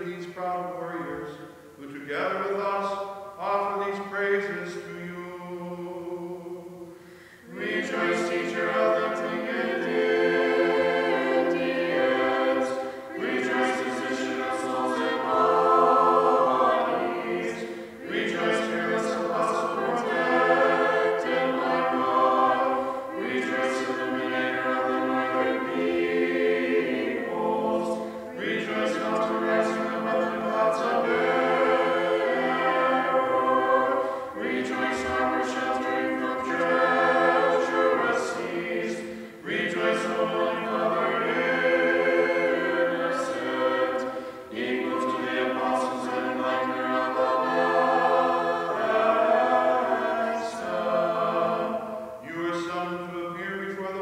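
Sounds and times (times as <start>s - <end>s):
choir chanting a cappella: 0.0s - 54.0s
singers breathing: 6.9s - 7.5s, 12.8s - 13.2s, 17.6s - 18.0s, 28.0s - 28.3s, 34.0s - 34.4s, 39.0s - 39.5s, 44.1s - 44.5s.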